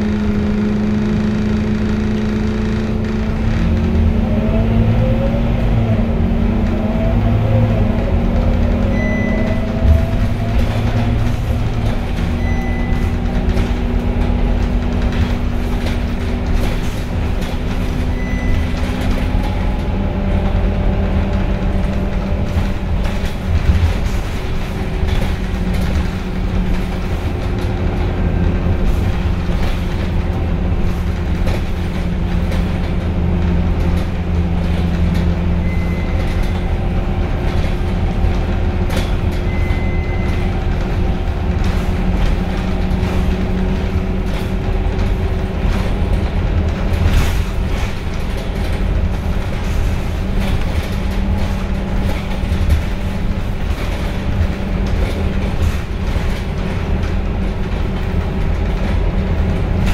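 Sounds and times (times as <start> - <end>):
bus engine drone and gearbox whine: 0.0 - 59.9
brief high beep: 8.9 - 9.6, 12.4 - 13.2, 18.1 - 18.8, 35.6 - 36.7, 39.5 - 40.4.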